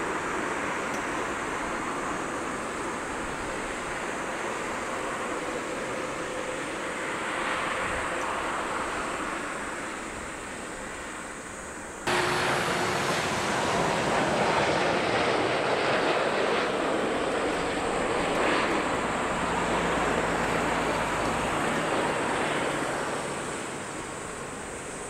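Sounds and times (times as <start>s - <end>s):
jet engines roaring: 0.0s - 25.0s.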